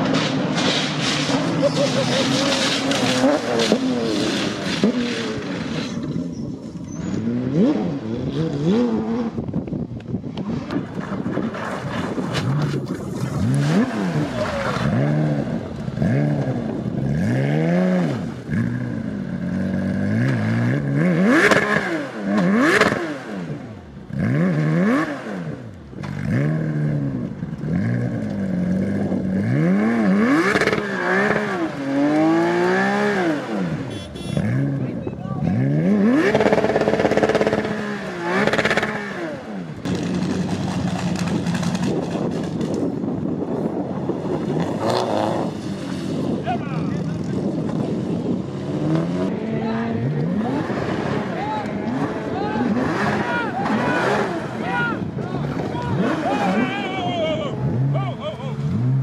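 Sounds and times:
tyres scraping on gravel: 0.0 - 7.7, 10.6 - 16.4
rally car engines revving: 0.0 - 59.0.

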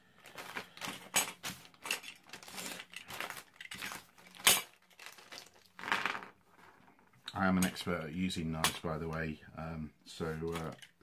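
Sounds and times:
plastic packaging crinkling: 0.1 - 7.2.

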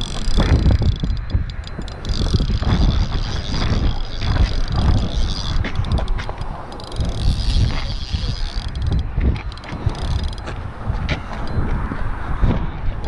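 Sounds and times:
fishing reel clicks: 0.0 - 10.6
wind buffeting microphone: 0.0 - 13.0.

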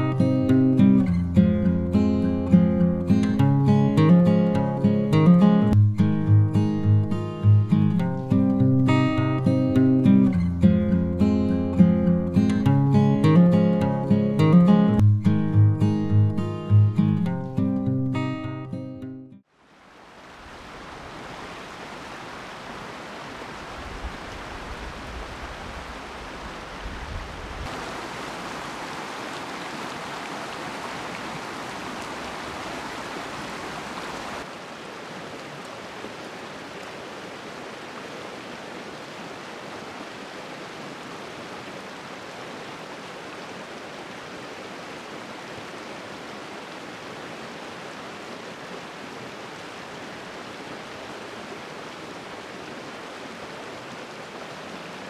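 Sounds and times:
stream water rushing: 0.0 - 17.4, 19.4 - 55.0.

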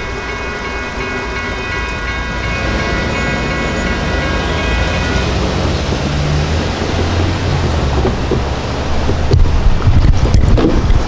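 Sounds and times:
railroad crossing bell ringing: 0.0 - 7.6
vehicles driving over crossing: 0.0 - 11.0
engine revving: 2.1 - 9.3.

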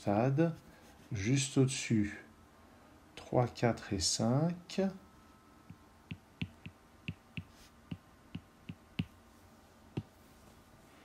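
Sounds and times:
stylus tapping on tablet screen: 5.7 - 9.2.

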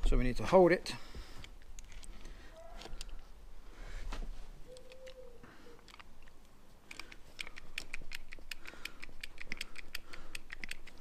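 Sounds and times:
crimping tool clicking: 5.8 - 11.0.

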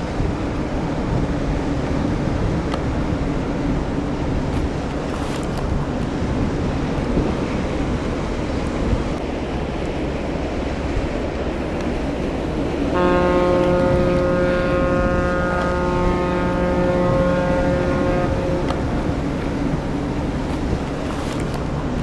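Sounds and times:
low rumble of ship and water: 0.0 - 22.0
ship horn long blast: 11.5 - 21.4.

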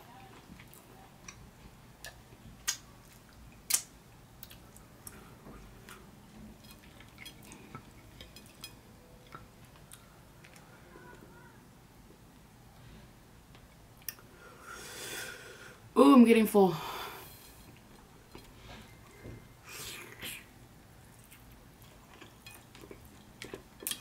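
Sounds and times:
wet mouth clicks and smacks: 3.6 - 5.2
chewing soft meat: 21.0 - 24.0.

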